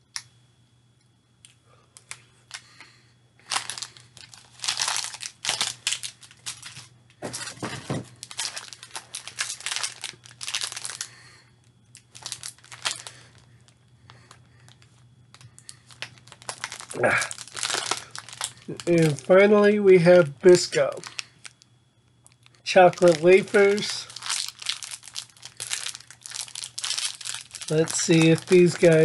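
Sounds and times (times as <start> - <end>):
snack packaging crinkling and tearing: 3.4 - 19.5, 20.5 - 29.0.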